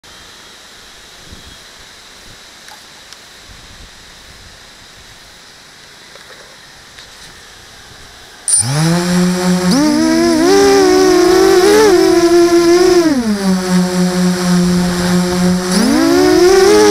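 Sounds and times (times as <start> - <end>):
drone motors and propellers humming: 8.5 - 16.9.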